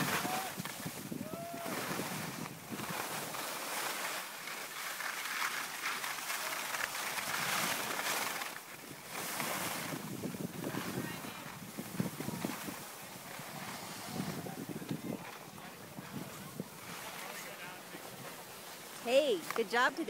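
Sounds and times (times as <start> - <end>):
wind rushing on microphone: 0.0 - 3.4, 8.8 - 18.4
skis sliding over snow: 0.0 - 20.0.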